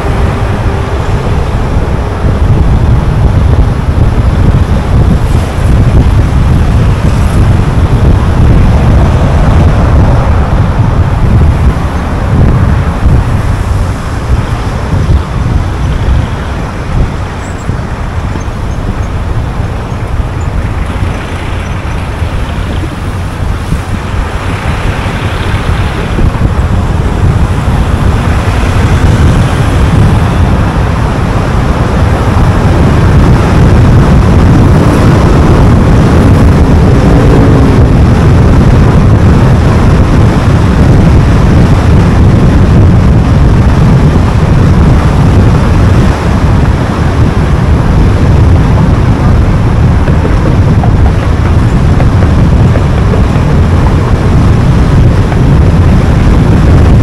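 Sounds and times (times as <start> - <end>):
car tyre and wind noise: 0.0 - 57.0
passing traffic hiss: 8.4 - 32.8.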